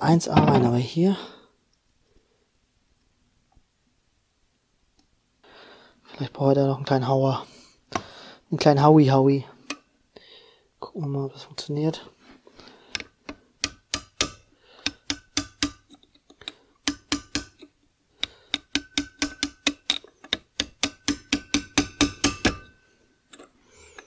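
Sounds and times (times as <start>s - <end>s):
small hammer tapping metal: 13.0s - 23.4s.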